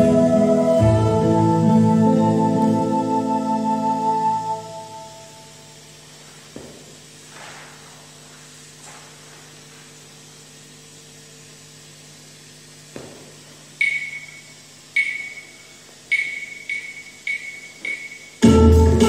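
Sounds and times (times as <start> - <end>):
faint steady hum: 0.0 - 19.0
sharp ringing taps: 13.8 - 18.4.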